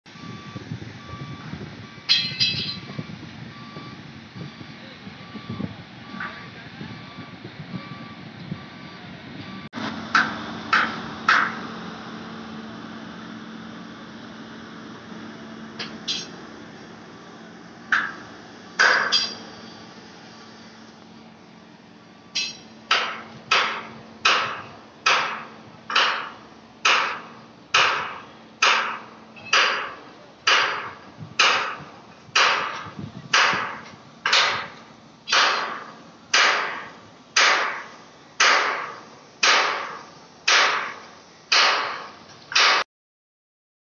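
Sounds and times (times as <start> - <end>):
ringing hammer blows: 2.1 - 2.9, 15.8 - 16.4, 18.8 - 19.8, 22.3 - 31.8, 33.4 - 42.8.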